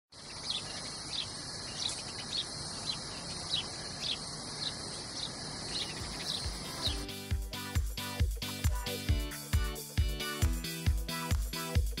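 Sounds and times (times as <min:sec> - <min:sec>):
bird chirps: 0:00.1 - 0:07.1
insects humming: 0:00.1 - 0:12.0.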